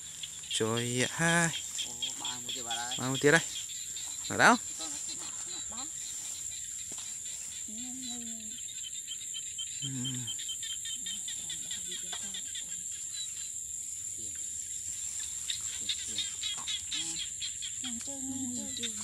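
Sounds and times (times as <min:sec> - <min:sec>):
crickets chirping: 0:00.0 - 0:19.0
insects trilling: 0:00.0 - 0:19.0
faint voices murmuring: 0:09.8 - 0:10.4.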